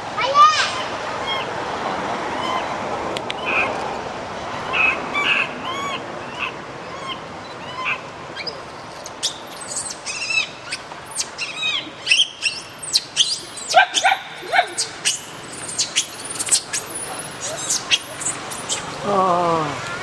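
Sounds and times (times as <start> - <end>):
baby monkey crying: 11.4 - 18.8.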